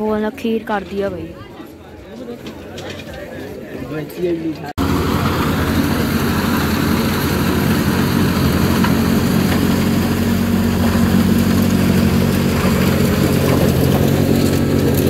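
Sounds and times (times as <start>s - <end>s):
diesel engine under load: 4.8s - 15.0s
snow rushing from blower: 4.8s - 15.0s.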